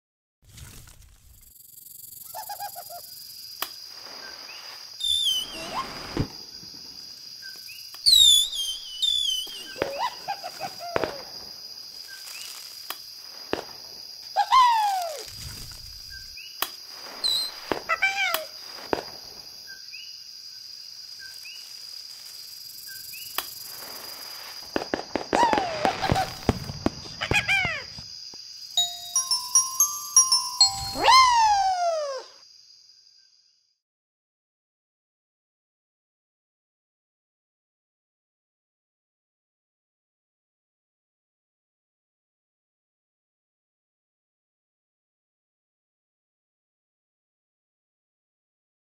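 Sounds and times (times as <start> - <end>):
high insect drone: 1.4 - 33.6
bird calls swooping down: 4.2 - 6.3, 8.1 - 11.2, 14.6 - 19.0, 30.2 - 32.2.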